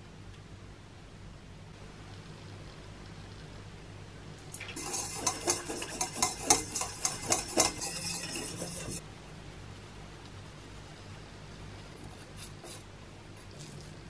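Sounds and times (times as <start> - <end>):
utensil scraping mixing bowl: 4.6 - 9.0, 9.6 - 14.0.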